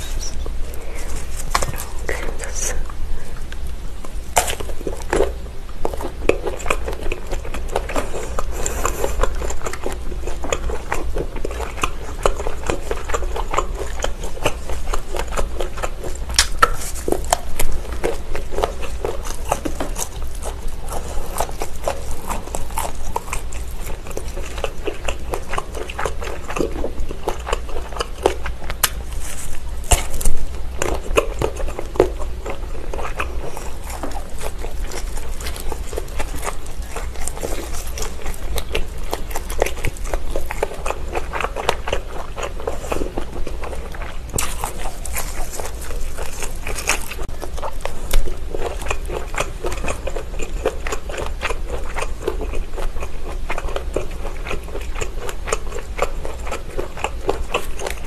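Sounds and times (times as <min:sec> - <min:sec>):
biting and wet chewing: 0:00.0 - 0:58.0
sausage snapping: 0:16.3 - 0:17.4, 0:28.6 - 0:29.0.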